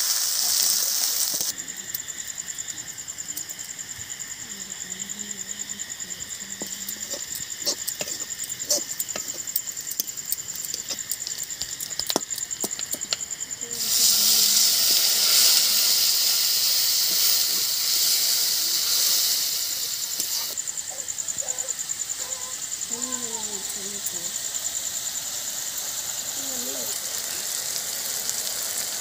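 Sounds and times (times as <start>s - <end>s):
oil hissing and sizzling: 0.0s - 29.0s
stick scraping a pan: 6.6s - 13.2s.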